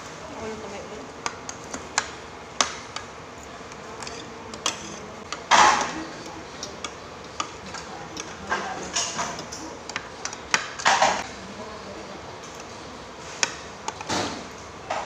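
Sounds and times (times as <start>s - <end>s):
cutlery clinking on plates: 4.0s - 6.0s.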